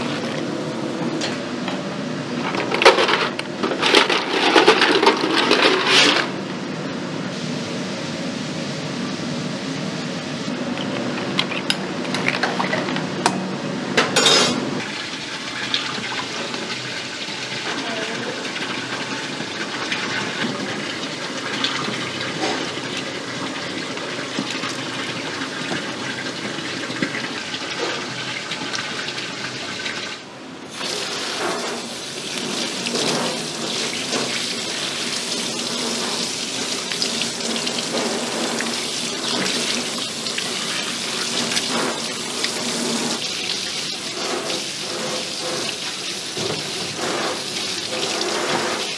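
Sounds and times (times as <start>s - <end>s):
ladle clinking in a pot: 14.1s - 14.6s.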